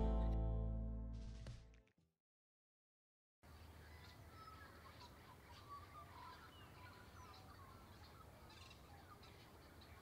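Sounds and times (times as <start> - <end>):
faint birds chirping: 3.4 - 10.0.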